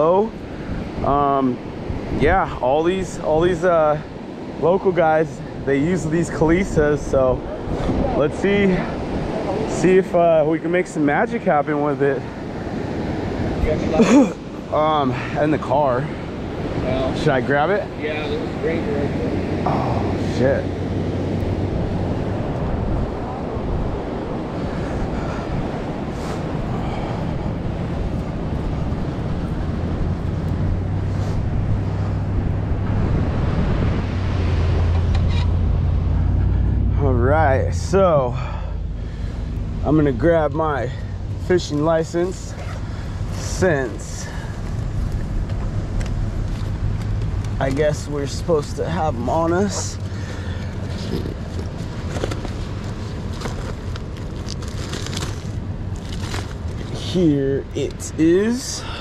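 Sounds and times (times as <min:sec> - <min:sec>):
wind over microphone: 0:00.0 - 0:09.7, 0:12.3 - 0:59.0
vehicle engine humming: 0:15.6 - 0:57.4
steady low rumble: 0:16.4 - 0:59.0.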